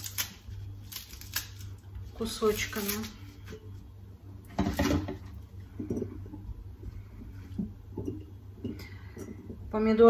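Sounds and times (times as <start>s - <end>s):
lettuce leaves tearing: 0.0s - 3.4s
steady low hum: 0.0s - 10.0s.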